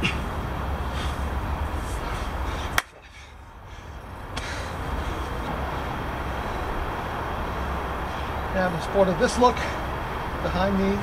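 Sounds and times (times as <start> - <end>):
outdoor rumble with low hum: 0.0 - 11.0
sharp clap: 2.7 - 3.0.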